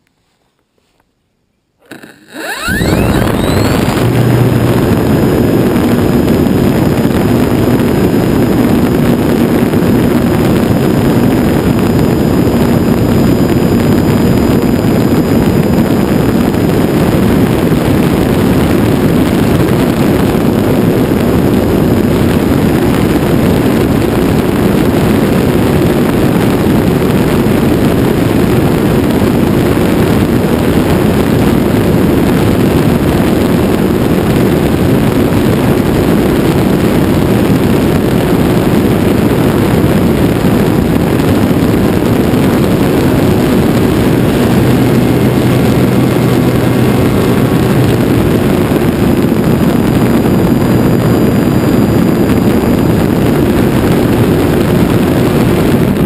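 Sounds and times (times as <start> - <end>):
thin high whine: 1.6 - 22.0
model airplane motor and propeller: 1.8 - 56.0
rushing airflow noise: 1.8 - 56.0.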